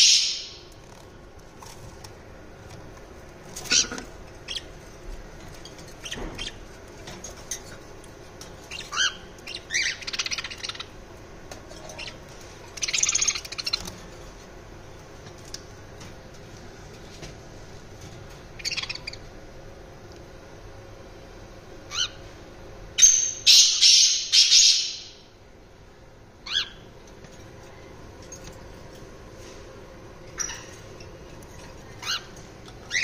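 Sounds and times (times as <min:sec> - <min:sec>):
parrots chirping and squawking: 0:00.0 - 0:01.0, 0:03.4 - 0:14.3, 0:18.5 - 0:19.3, 0:21.9 - 0:22.2, 0:23.0 - 0:25.2, 0:26.4 - 0:26.9, 0:30.2 - 0:33.0.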